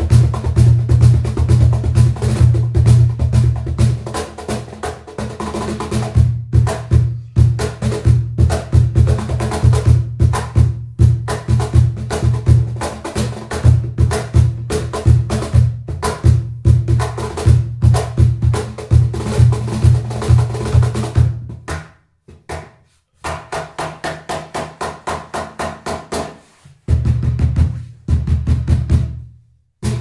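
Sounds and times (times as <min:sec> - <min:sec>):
cajon bass strokes and slaps: 0:00.0 - 0:30.0.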